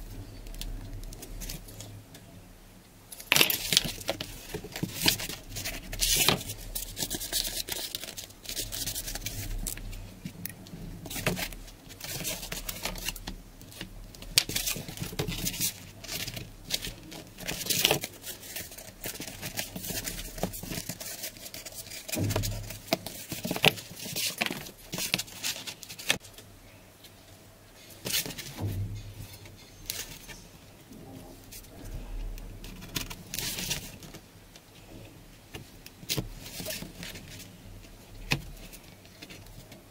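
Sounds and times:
cardboard rustling and scraping: 3.3s - 26.4s, 27.9s - 30.5s, 31.1s - 34.3s, 35.5s - 39.8s
dull thumps: 22.1s - 23.8s.

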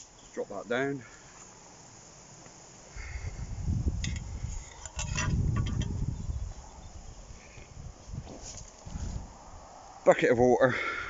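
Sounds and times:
brushing through grass: 7.3s - 9.4s.

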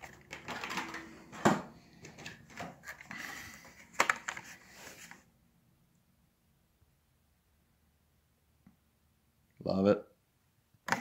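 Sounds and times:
sharp plastic clacks: 3.9s - 4.5s.

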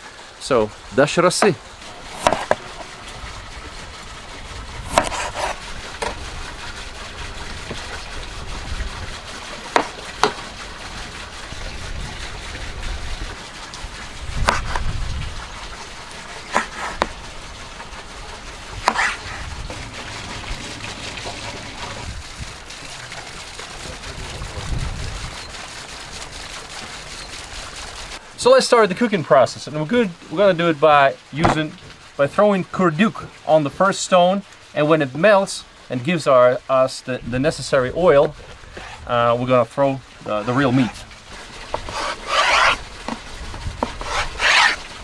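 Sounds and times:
knife hitting cutting board: 2.2s - 2.6s, 16.5s - 17.1s, 18.9s - 19.2s.

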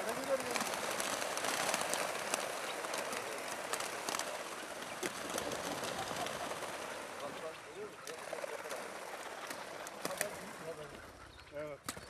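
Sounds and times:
sharp wing flaps: 0.0s - 7.3s
birds wings whirring: 0.0s - 12.0s.

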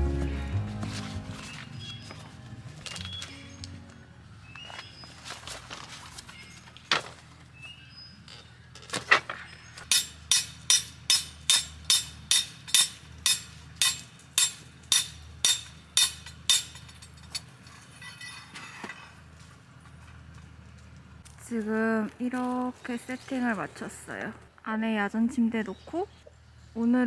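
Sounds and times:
hammer striking metal tent peg: 9.9s - 16.8s.

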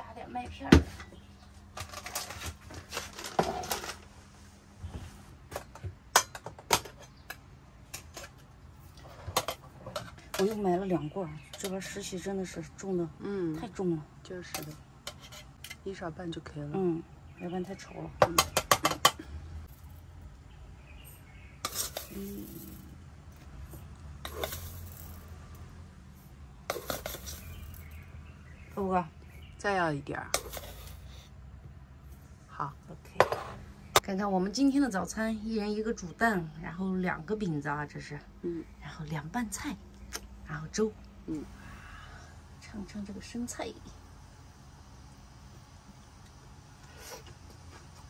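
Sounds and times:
low steady hum: 0.0s - 48.0s
metal spoon scraping in a tin: 14.6s - 15.8s, 21.6s - 22.5s.

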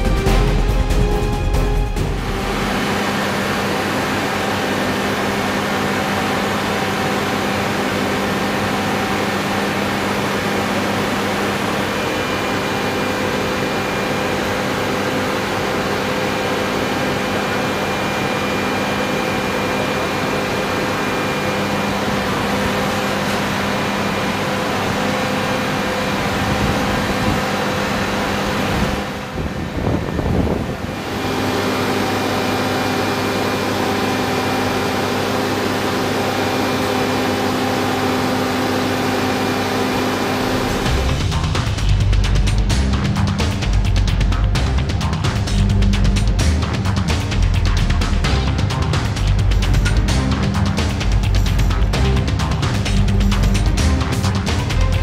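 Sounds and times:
fans droning: 0.0s - 55.0s
constant low hum: 40.2s - 55.0s.

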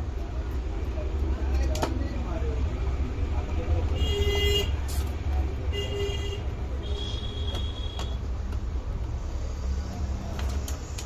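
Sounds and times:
low rumble of traffic: 0.0s - 11.0s.

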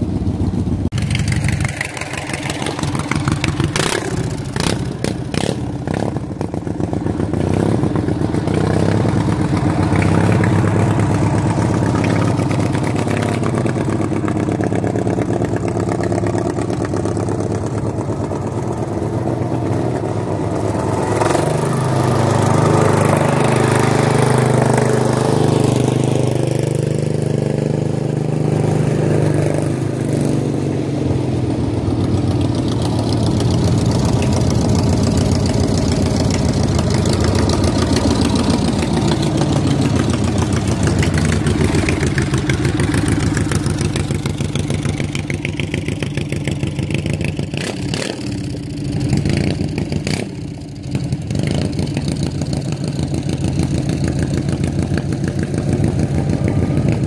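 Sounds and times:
lawn tractor engines revving: 0.9s - 57.0s.

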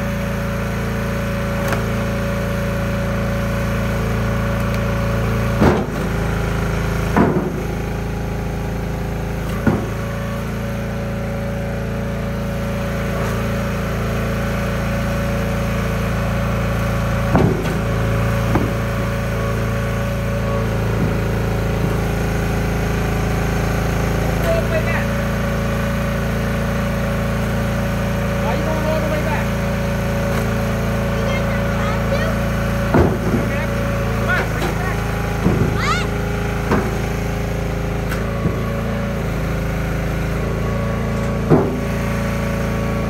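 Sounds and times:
gas engine running: 0.0s - 43.0s
sharp cracks and knocks: 1.6s - 2.0s, 5.5s - 6.3s, 7.0s - 7.8s, 9.4s - 10.1s, 17.2s - 19.0s, 36.6s - 37.0s.

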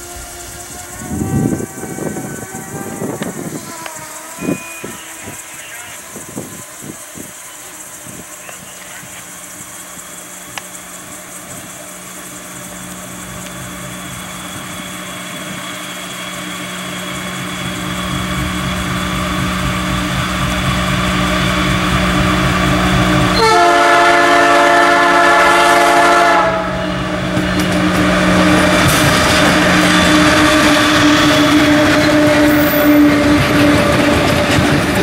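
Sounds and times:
train horn chord: 0.0s - 5.4s, 21.8s - 27.2s, 27.8s - 34.3s
diesel locomotive engine: 0.0s - 35.0s.

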